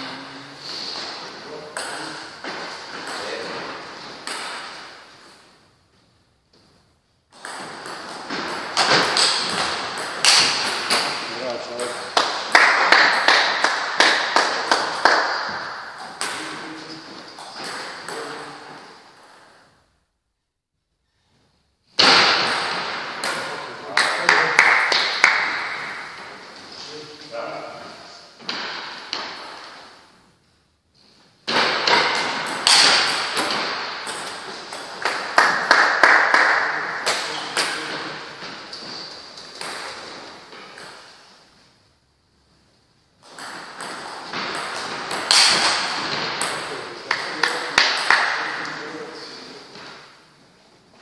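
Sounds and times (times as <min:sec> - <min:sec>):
table tennis ball bouncing: 0:01.7 - 0:05.1, 0:07.3 - 0:11.3, 0:12.1 - 0:18.8, 0:22.0 - 0:26.4, 0:31.5 - 0:41.2, 0:43.2 - 0:48.6.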